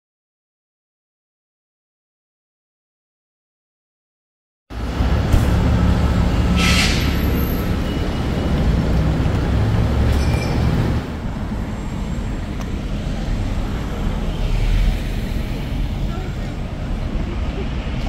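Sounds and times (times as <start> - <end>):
vehicle rumble: 4.7 - 18.0.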